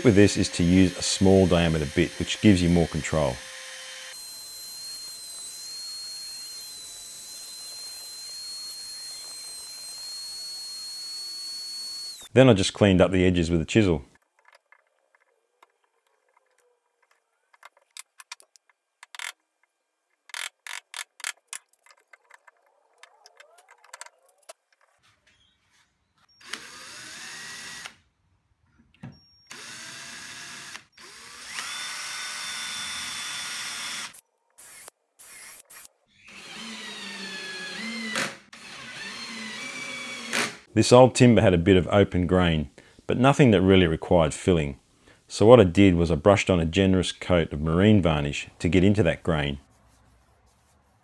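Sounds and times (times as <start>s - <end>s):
cordless drill driving screws: 0.1s - 12.3s, 26.4s - 28.0s, 29.5s - 40.6s.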